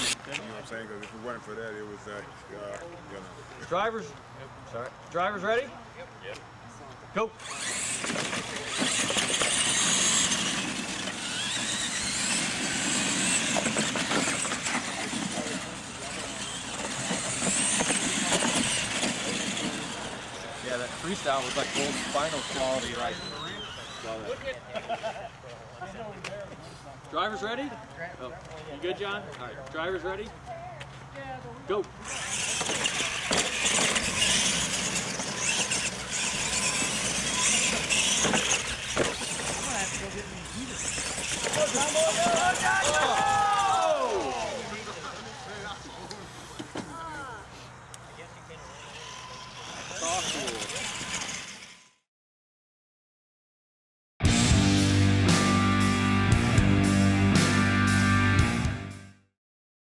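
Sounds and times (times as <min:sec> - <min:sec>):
rc truck motors whining: 0:00.0 - 0:00.2, 0:07.4 - 0:25.2, 0:31.8 - 0:52.0
tyres rushing on dirt: 0:07.4 - 0:24.4, 0:32.0 - 0:47.0.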